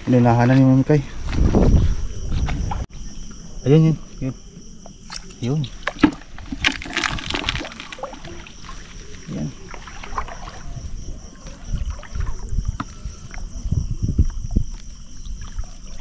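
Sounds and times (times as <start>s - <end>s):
insect trill: 0.0s - 16.0s
seawater splashing: 5.1s - 13.1s.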